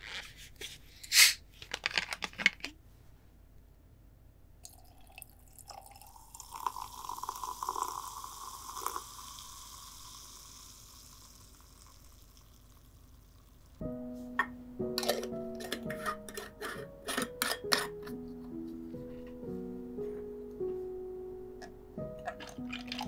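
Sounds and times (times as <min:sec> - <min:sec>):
liquid pouring over ice: 0:04.6 - 0:13.8, 0:22.2 - 0:23.0
ice cubes clinking into a glass: 0:04.7 - 0:12.8, 0:22.2 - 0:23.0
high fizzing hiss: 0:06.2 - 0:13.8.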